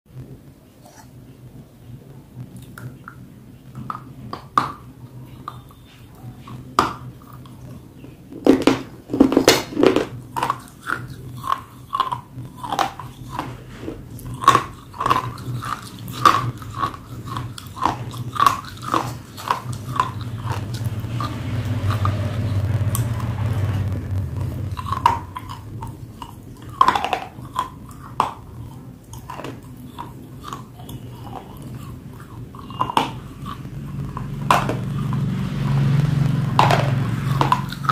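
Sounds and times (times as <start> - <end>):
chewing crunchy clay: 10.0 - 21.0, 24.7 - 35.2.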